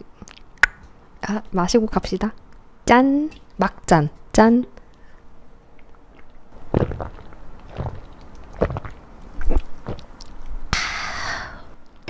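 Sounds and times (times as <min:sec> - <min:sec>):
person gulping beer: 0:06.2 - 0:10.3
breathy exhale: 0:10.8 - 0:11.7.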